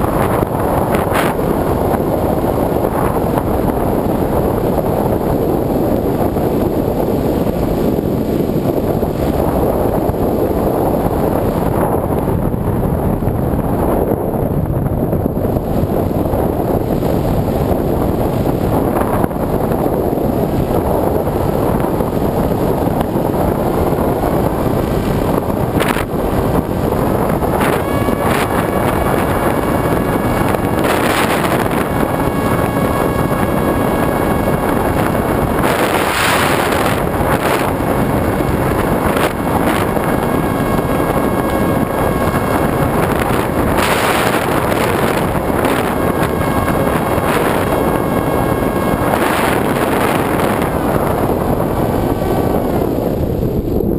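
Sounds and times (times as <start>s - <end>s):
wind rushing over camera: 0.0s - 53.9s
model aircraft motor drone: 15.5s - 53.9s.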